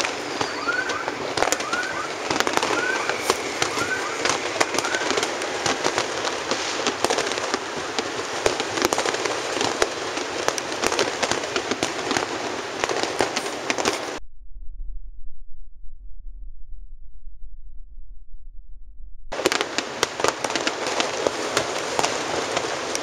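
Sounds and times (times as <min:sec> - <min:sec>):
continuous crackling din: 0:00.0 - 0:14.2, 0:19.3 - 0:23.0
firework whistles: 0:00.0 - 0:14.2, 0:19.4 - 0:23.0
fireworks bangs and pops: 0:00.0 - 0:14.2, 0:19.3 - 0:23.0.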